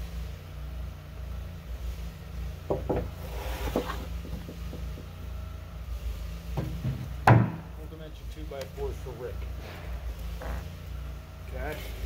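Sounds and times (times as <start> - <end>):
engine idling hum: 0.0 - 12.0
wooden boards knocking together: 2.7 - 5.1, 6.6 - 7.7.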